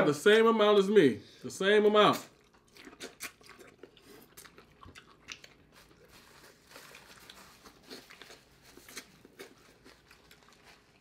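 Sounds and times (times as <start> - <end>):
chewing corn on the cob: 2.2 - 11.0.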